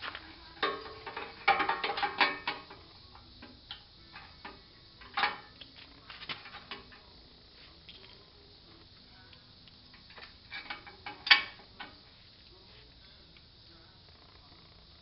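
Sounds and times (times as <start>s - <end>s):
metal rollers clinking and rattling: 0.0s - 7.1s, 9.9s - 12.0s.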